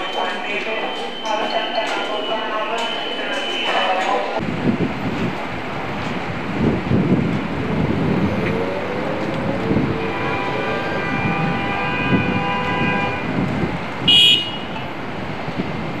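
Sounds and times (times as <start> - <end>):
city street traffic: 0.0 - 16.0
held pitched tone: 7.4 - 12.7
loud high-pitched squeal: 7.6 - 13.1.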